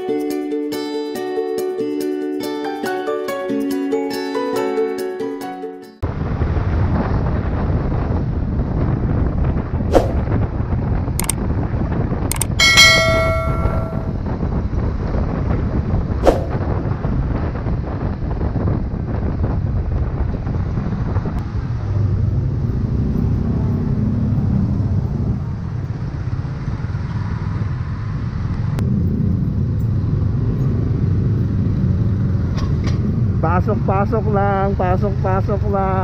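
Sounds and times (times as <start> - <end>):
wind and road noise: 6.0 - 36.0
sharp click: 9.9 - 10.2, 11.2 - 11.4, 12.3 - 14.1.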